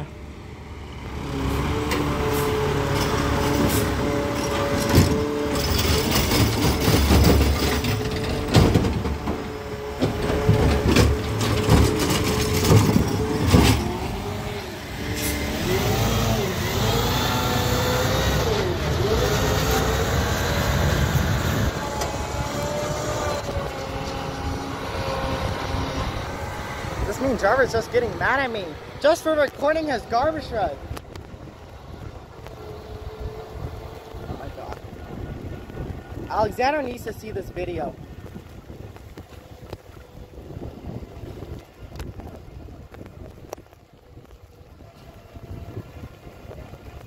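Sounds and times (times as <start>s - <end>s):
side-loader arm working: 1.2s - 27.6s
garbage truck engine running: 1.4s - 36.2s.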